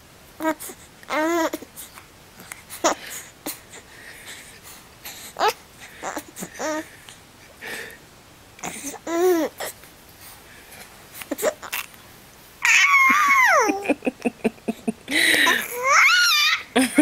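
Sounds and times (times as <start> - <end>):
baby cooing and laughing: 0.4 - 1.7, 5.4 - 6.9, 8.6 - 9.8, 11.2 - 11.9, 12.6 - 17.0
baby high squeal: 12.6 - 13.7, 15.6 - 16.7.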